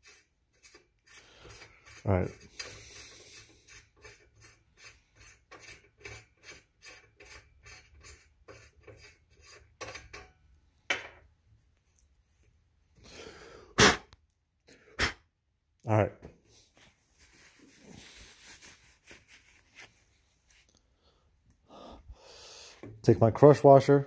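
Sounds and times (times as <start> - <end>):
rhythmic scrubbing on metal threads: 0.0 - 10.3.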